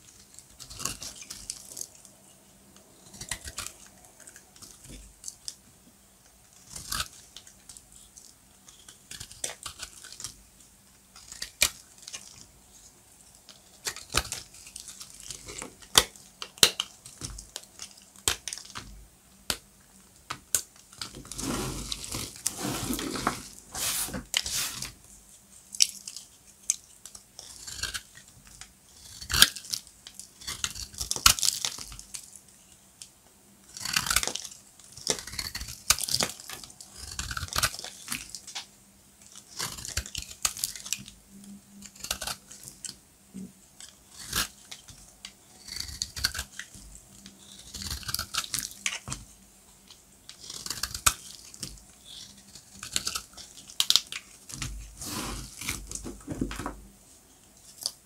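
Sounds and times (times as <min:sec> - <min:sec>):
dry soap cracking and crunching: 0:03.0 - 0:05.6, 0:06.6 - 0:10.5, 0:11.1 - 0:12.5, 0:13.4 - 0:22.5, 0:25.7 - 0:32.4, 0:33.7 - 0:41.2, 0:41.8 - 0:43.0, 0:43.8 - 0:49.3, 0:49.9 - 0:56.8.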